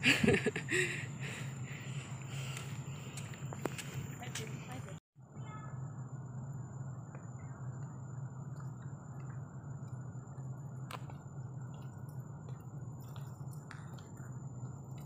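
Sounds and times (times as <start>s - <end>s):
footsteps on stone steps: 2.1s - 5.0s.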